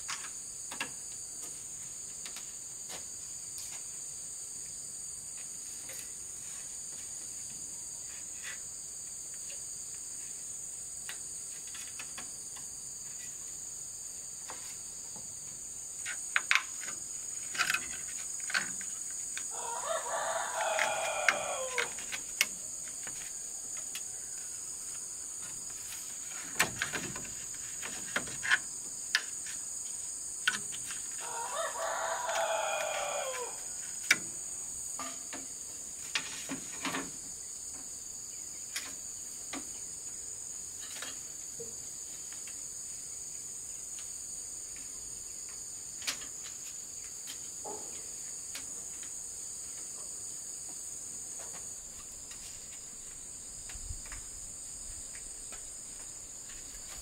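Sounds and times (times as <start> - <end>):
insects droning: 0.0 - 57.0
bamboo poles knocking: 16.0 - 19.4, 26.2 - 29.6
rooster crowing: 19.5 - 22.0, 31.2 - 33.8.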